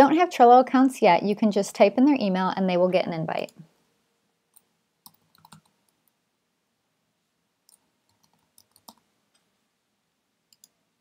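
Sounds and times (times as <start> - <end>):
computer keyboard keystrokes: 4.6 - 5.8, 7.7 - 9.0, 10.5 - 10.8.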